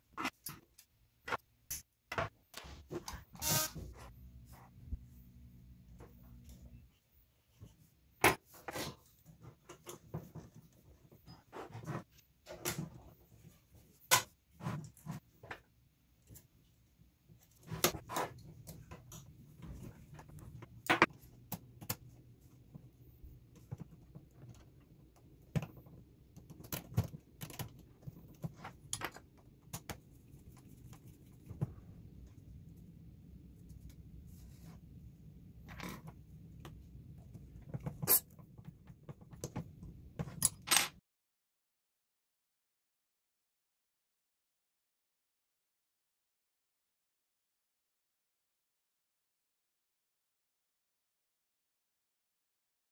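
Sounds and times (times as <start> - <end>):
small parts clicking and tapping: 40.2 - 41.0.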